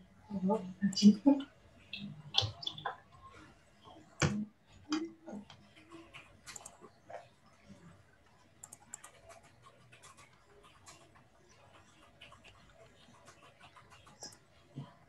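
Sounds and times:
keyboard and mouse clicking: 1.9 - 2.9, 4.2 - 6.8, 8.6 - 14.8.

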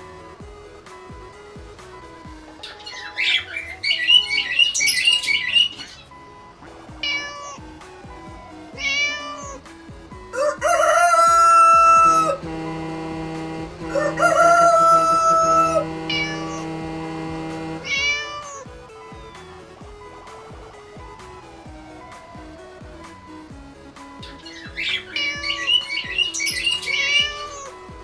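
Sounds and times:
background music with held notes: 0.0 - 28.0
cat meowing: 7.0 - 7.7, 8.8 - 9.6, 17.8 - 18.8, 25.1 - 25.8, 26.8 - 27.7.

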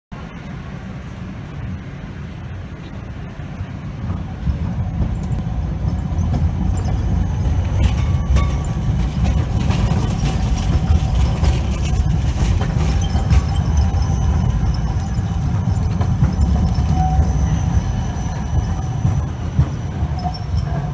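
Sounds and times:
tram rumbling past: 0.1 - 20.9
wheels squealing on rails: 2.8 - 20.9
wheels clicking over track joints: 4.0 - 20.9.

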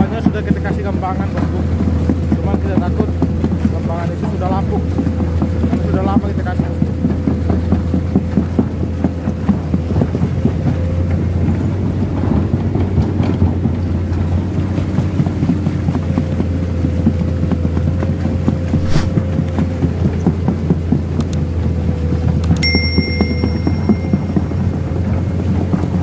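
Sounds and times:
machine moving through water: 18.7 - 19.2.

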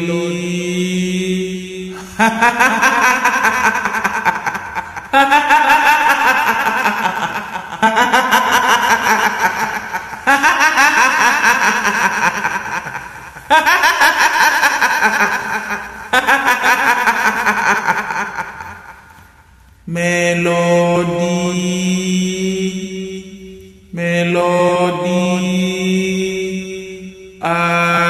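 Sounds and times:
woman cackling laugh: 2.0 - 19.2.

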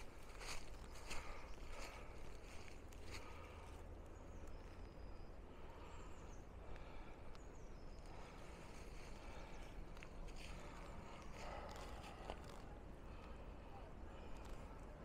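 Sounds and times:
footsteps on snowy leaves: 0.0 - 3.6.

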